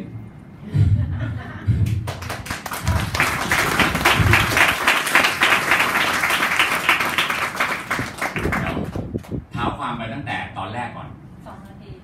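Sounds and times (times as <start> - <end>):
audience clapping: 1.8 - 9.4.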